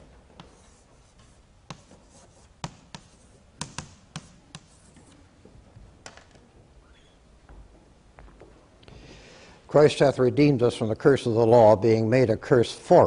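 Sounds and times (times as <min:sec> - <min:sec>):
chalk scratching: 0:00.0 - 0:05.2
chalk tapping on blackboard: 0:00.4 - 0:05.2.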